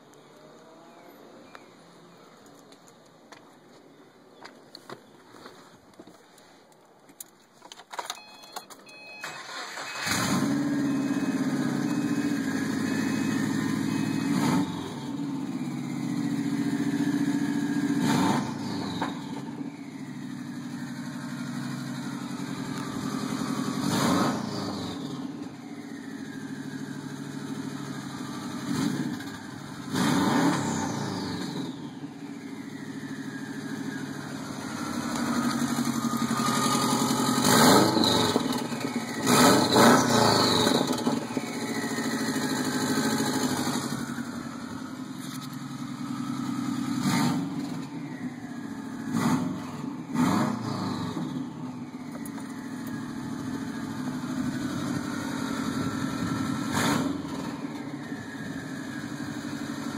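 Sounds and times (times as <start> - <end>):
car engine starting and revving: 0.0 - 1.6, 9.0 - 59.9.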